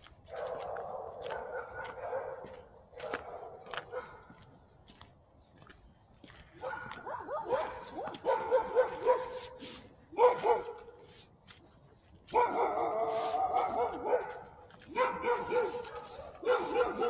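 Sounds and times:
dog barking and yelping: 0.3 - 4.3, 6.6 - 10.9, 12.3 - 17.0.

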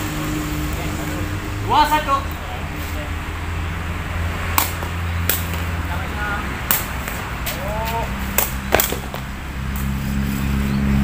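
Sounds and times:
ball struck with sharp smack: 4.5 - 5.7.

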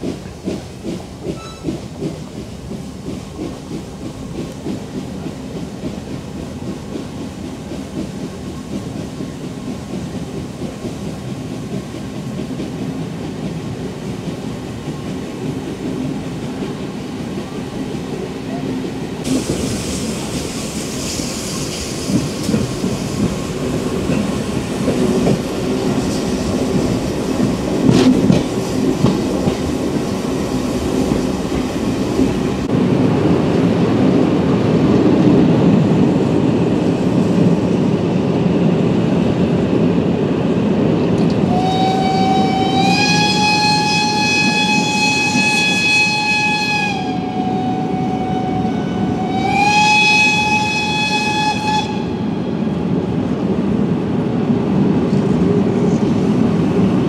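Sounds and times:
train wheels rumbling and clacking: 0.0 - 57.0
steam locomotive whistle: 41.4 - 52.6.

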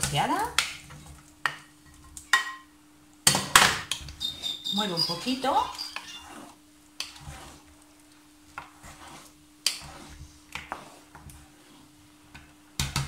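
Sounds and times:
spoon stirring thick stew: 3.9 - 12.5
soft scraping: 4.8 - 7.8, 8.5 - 12.2.

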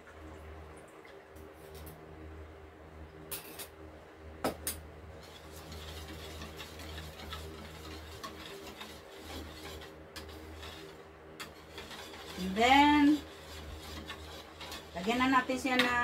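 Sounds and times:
whisk scraping plastic bowl: 5.2 - 16.0.

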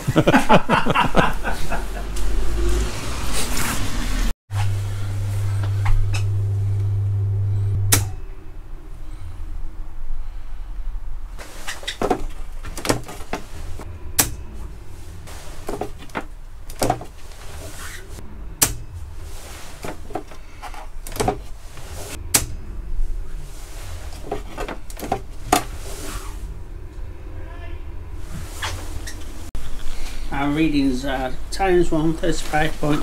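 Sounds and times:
circuit breaker switch clicks: 7.8 - 8.2.

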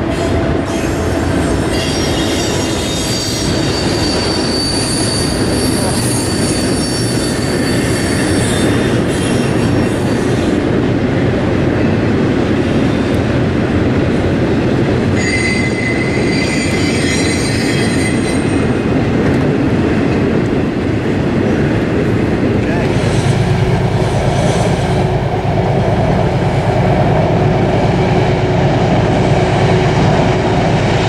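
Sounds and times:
freight train wheels rumbling: 0.0 - 31.0
high wheel squeal: 0.7 - 10.6, 15.2 - 18.7.

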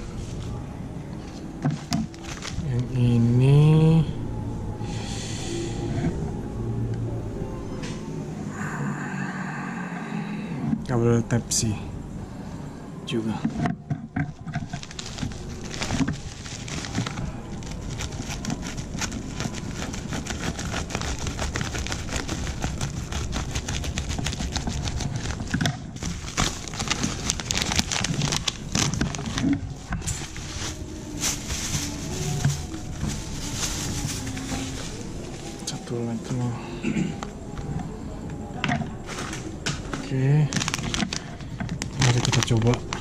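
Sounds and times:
plastic bag crinkling: 1.6 - 3.3, 13.4 - 36.4, 39.0 - 43.0.

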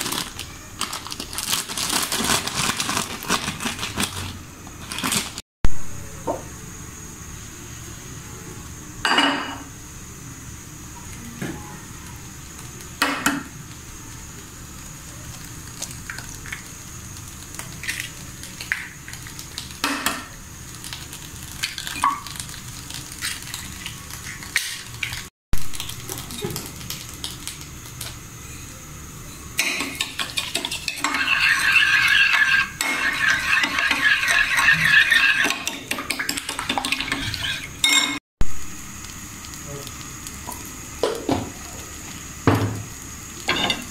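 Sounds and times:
spoon beating eggs in a bowl: 29.6 - 37.7.

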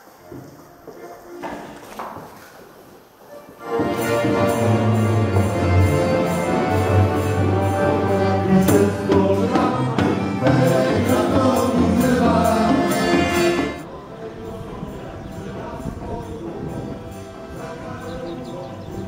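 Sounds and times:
live band playing dance tune: 3.6 - 13.8.

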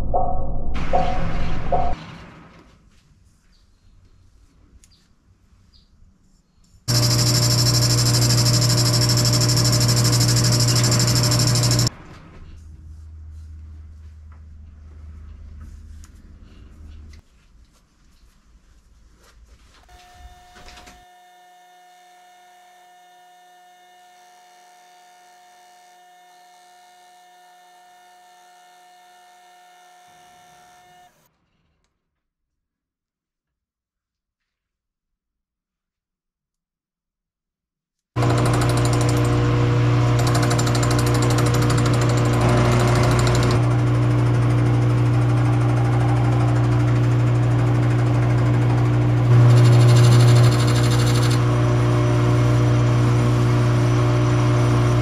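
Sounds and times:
metal lathe running: 6.9 - 11.9, 38.2 - 55.0.

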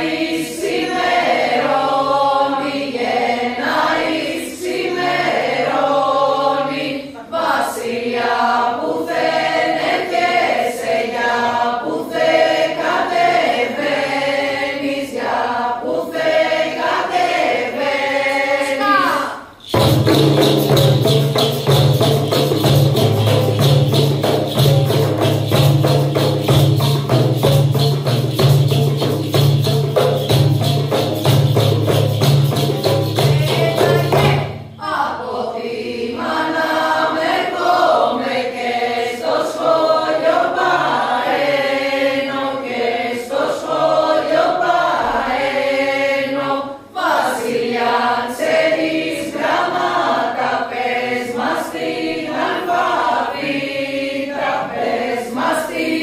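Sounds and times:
group singing in two parts: 0.0 - 56.0
frame drums beaten fast: 19.6 - 34.8.

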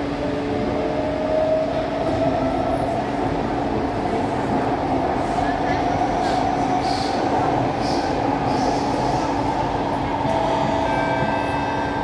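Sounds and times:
metro train rumble: 0.0 - 12.0.

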